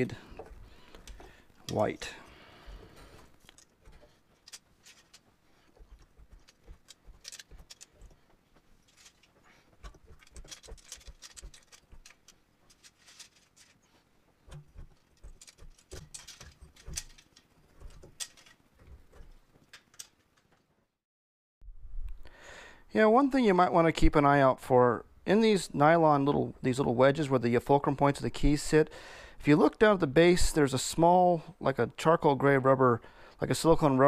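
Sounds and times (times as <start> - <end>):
plastic keys clicking and clattering: 3.4 - 5.3, 5.9 - 8.2, 8.9 - 13.8, 15.0 - 20.5.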